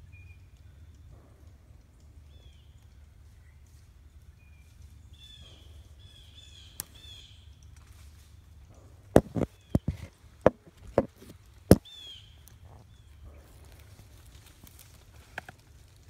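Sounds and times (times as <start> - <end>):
camera knocks and leaf crunches: 9.2 - 11.9.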